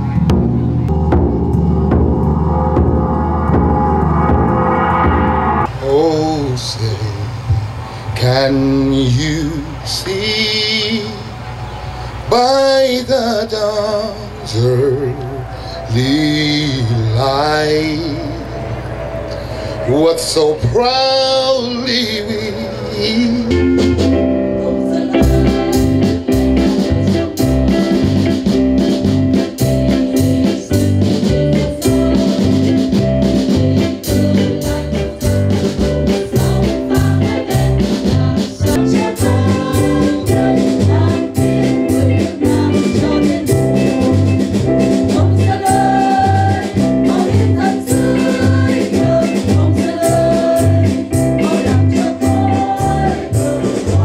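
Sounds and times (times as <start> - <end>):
instrumental accompaniment with bass beat: 0.0 - 5.8, 23.4 - 54.0
women's choir singing: 24.6 - 25.9, 33.5 - 44.3, 45.0 - 54.0.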